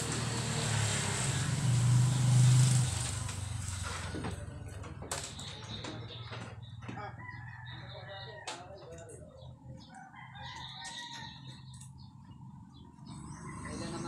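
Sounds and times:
rooster crowing: 0:07.0 - 0:08.7, 0:09.9 - 0:11.7.

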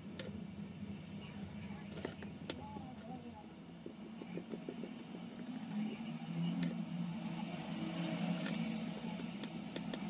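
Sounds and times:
low motor hum: 0:00.0 - 0:10.0
small tools clicking and tapping: 0:09.2 - 0:10.0.

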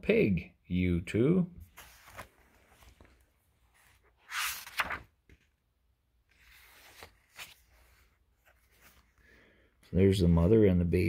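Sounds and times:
book page turning: 0:01.6 - 0:05.5, 0:06.3 - 0:09.2
paper rustling: 0:01.6 - 0:05.5, 0:06.3 - 0:09.3.

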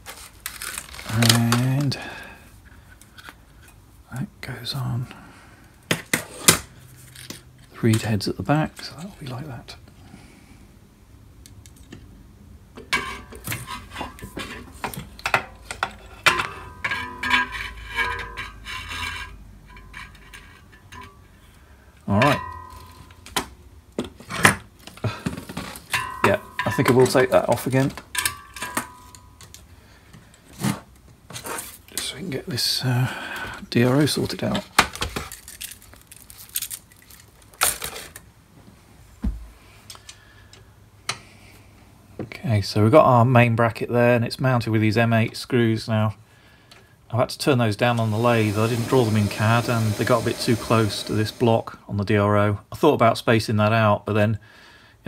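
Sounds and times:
metal cable rattling scrape: 0:12.9 - 0:21.2
metal parts clinking: 0:25.6 - 0:29.7, 0:35.2 - 0:38.2.

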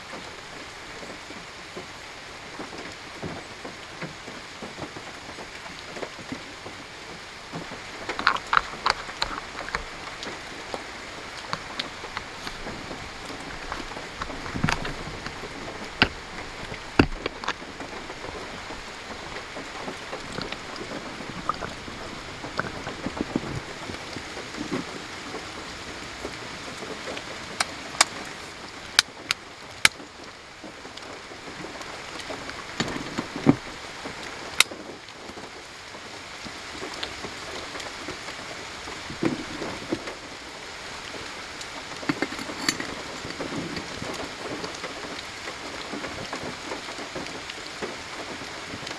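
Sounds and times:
steady rain falling: 0:00.0 - 0:48.9
metal parts clicking and tapping: 0:42.0 - 0:43.0.

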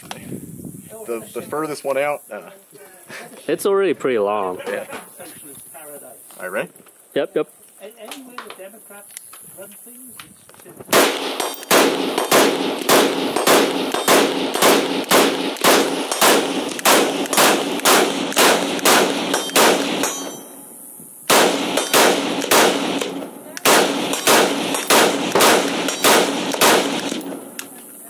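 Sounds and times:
rifle shots fired fast: 0:10.9 - 0:20.4, 0:21.3 - 0:27.6.

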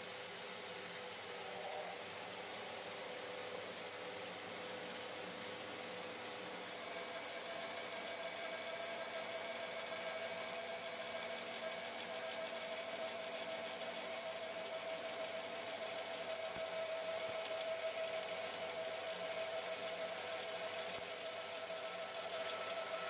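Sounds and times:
band saw whirring: 0:06.6 - 0:23.0.

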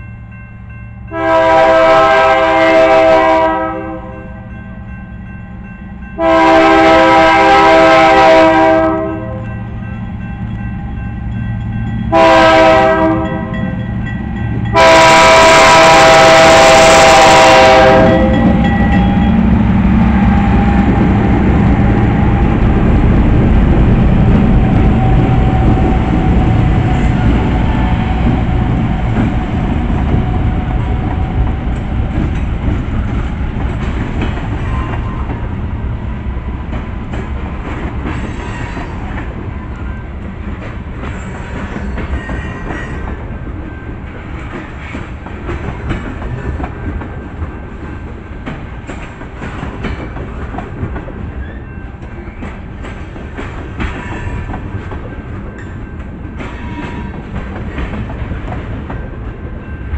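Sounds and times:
diesel locomotive rumble: 0:04.9 - 0:59.9
train wheels clicking over rail joints: 0:18.3 - 0:35.6, 0:36.5 - 0:59.6.

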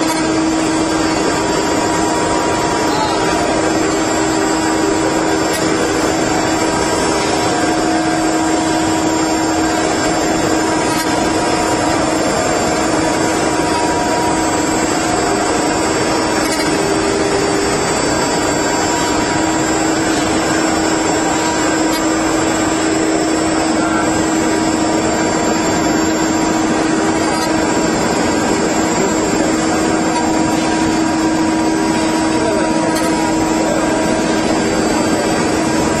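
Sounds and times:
router spindles whining: 0:00.0 - 0:36.0.

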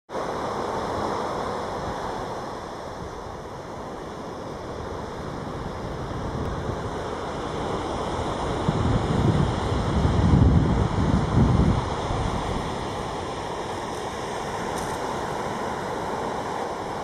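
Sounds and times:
wind rumbling on microphone: 0:00.2 - 0:17.0.

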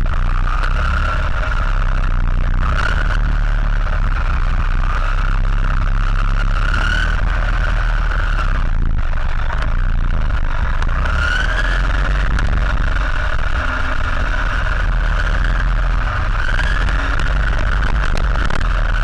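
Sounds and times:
rumble of vibration and track noise: 0:00.0 - 0:19.0
toy car motor whining: 0:10.6 - 0:19.0.

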